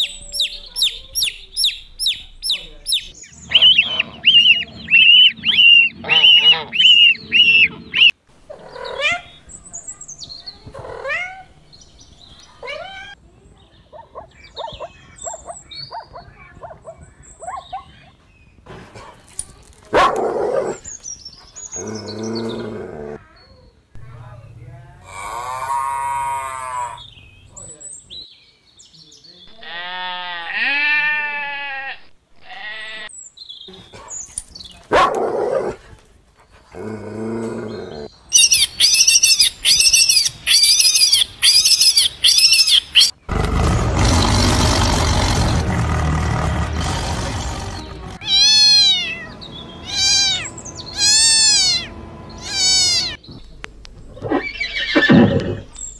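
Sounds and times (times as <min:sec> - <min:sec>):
dog barking: 0:19.9 - 0:20.8, 0:34.9 - 0:35.7
high-pitched squeaky calls: 0:38.3 - 0:43.2, 0:47.9 - 0:53.2
tiger roaring: 0:43.2 - 0:53.2.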